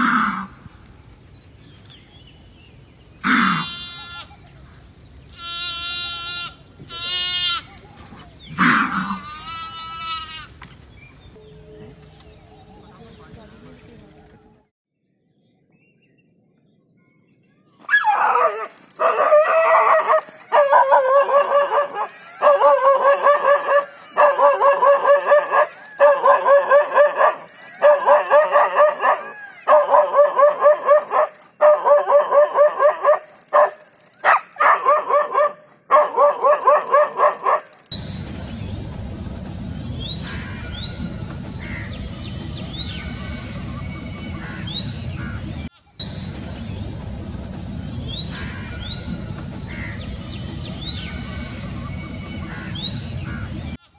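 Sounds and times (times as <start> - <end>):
steady outdoor hiss: 0.0 - 14.7, 16.2 - 53.8
dog barking: 17.9 - 37.8.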